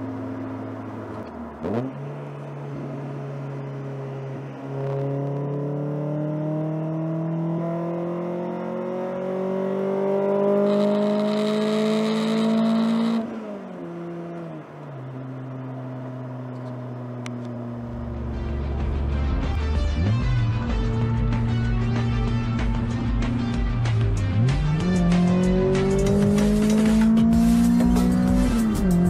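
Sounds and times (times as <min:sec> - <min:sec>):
car engine accelerating: 0:00.0 - 0:29.0.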